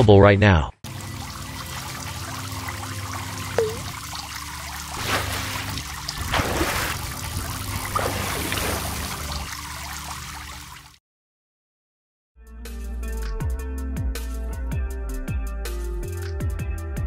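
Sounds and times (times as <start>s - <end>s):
water trickling and splashing: 0.9s - 11.0s.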